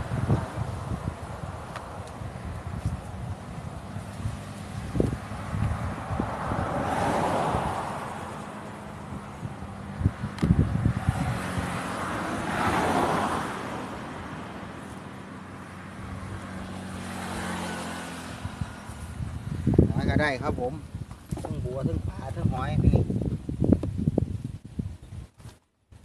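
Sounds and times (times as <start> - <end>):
road vehicles passing: 0.0 - 24.1
handling knocks and rustles: 21.1 - 21.7.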